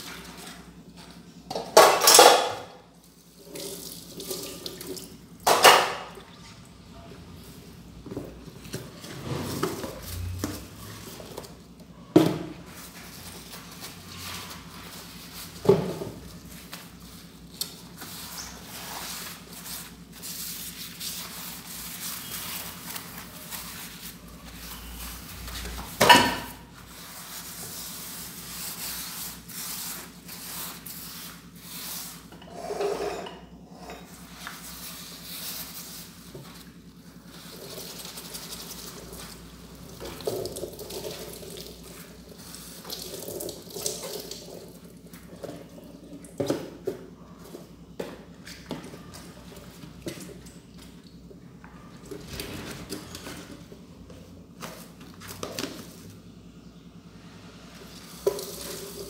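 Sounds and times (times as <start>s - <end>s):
scrubbing dishes: 1.5s - 2.9s
dishware clanking: 1.6s - 2.7s.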